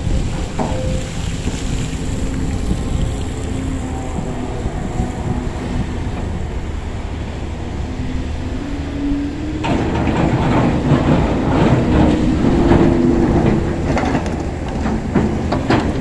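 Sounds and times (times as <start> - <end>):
excavator engine droning: 0.0 - 16.0
metallic clanking and rattling: 9.4 - 16.0.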